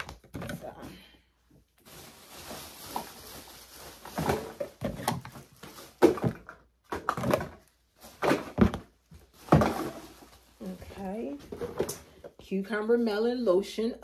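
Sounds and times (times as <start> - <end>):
plastic bottles knocking together: 0.0 - 1.0, 2.4 - 10.4, 11.2 - 12.4
rustling: 1.7 - 6.2.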